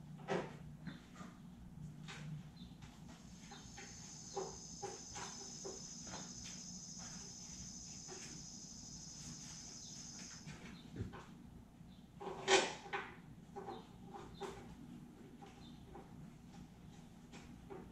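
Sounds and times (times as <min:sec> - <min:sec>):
high insect trill: 0:03.2 - 0:10.6.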